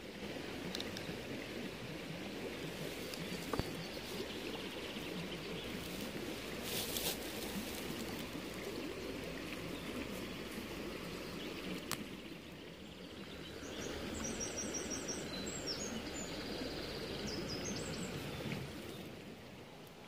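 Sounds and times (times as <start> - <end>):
rushing outdoor ambient noise: 0.0 - 20.0
faint click: 11.8 - 12.1.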